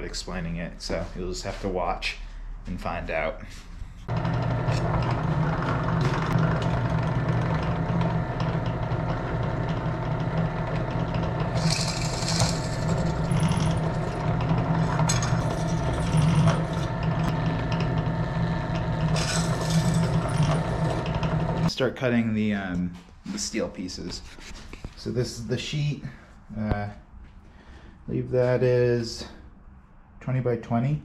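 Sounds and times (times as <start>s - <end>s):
drill bit cutting metal: 4.1s - 21.7s
drill press running: 4.1s - 21.7s.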